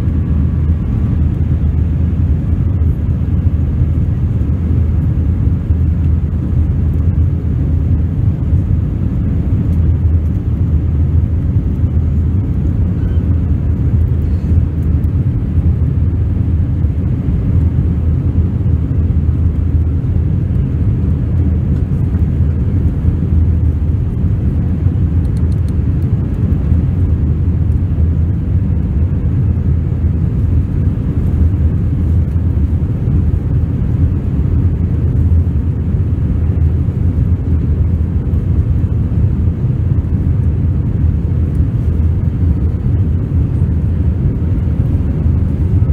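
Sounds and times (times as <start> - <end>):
jet engines rumbling: 0.0 - 45.9.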